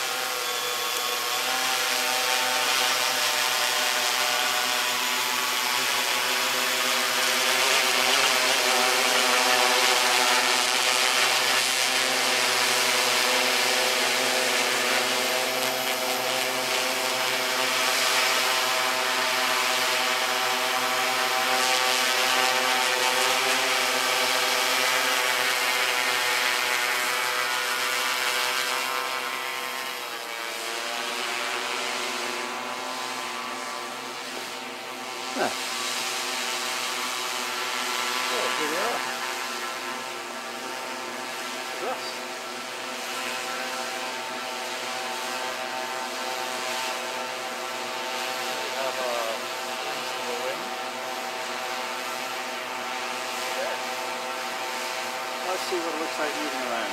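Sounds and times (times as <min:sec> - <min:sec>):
quadcopter propellers whining: 0:00.0 - 0:56.9.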